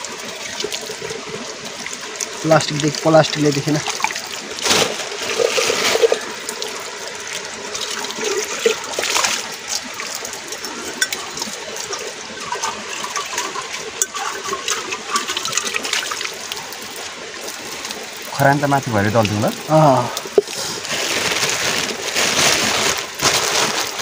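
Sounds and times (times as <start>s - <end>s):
stream trickling: 0.0s - 24.0s
water sloshing in a pot: 0.0s - 24.0s
water poured onto rock: 2.5s - 6.8s.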